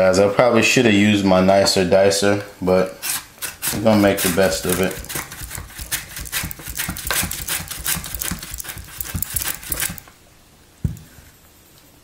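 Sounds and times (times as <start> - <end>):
mandoline slicer scraping cuts: 3.0 - 10.1.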